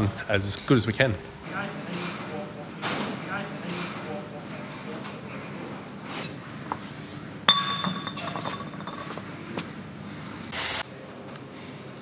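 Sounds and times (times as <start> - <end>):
glass bottle clinking on concrete: 7.5 - 9.2.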